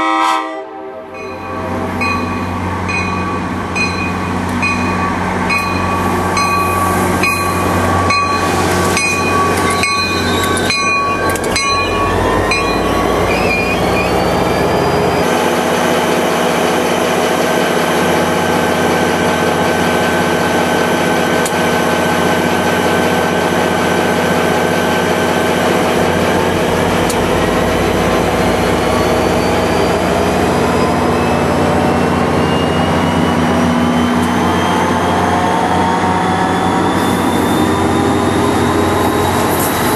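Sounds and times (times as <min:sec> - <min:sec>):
diesel locomotive engine humming: 0:00.0 - 0:39.9
locomotive bell ringing: 0:01.2 - 0:15.3.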